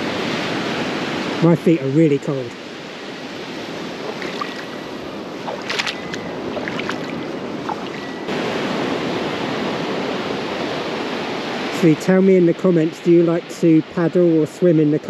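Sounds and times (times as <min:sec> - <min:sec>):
surf washing over rocky shore: 0:00.0 - 0:15.0
feet splashing in water: 0:03.8 - 0:08.1.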